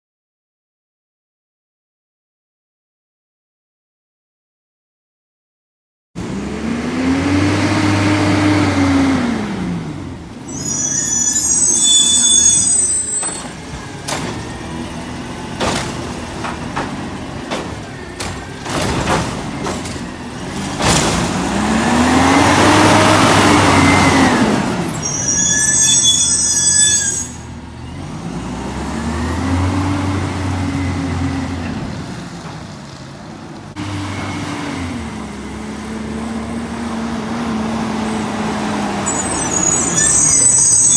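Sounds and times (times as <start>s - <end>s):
garbage truck engine revving: 6.2s - 32.4s
knocks and clanks: 13.2s - 14.7s, 15.5s - 21.6s.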